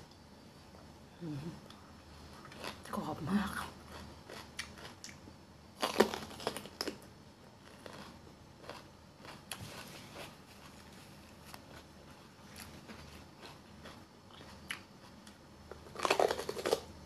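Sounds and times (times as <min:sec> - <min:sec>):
person chewing bell pepper: 0:01.7 - 0:16.9.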